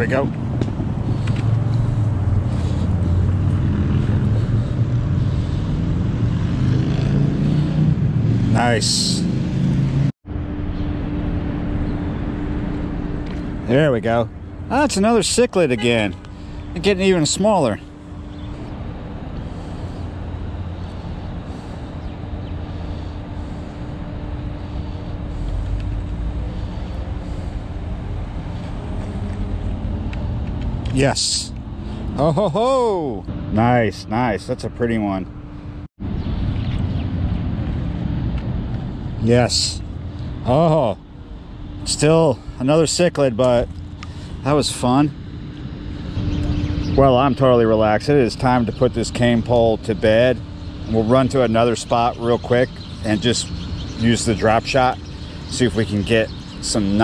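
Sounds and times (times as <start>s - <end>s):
low engine drone: 0.0s - 57.0s
low outdoor rumble: 0.0s - 57.0s.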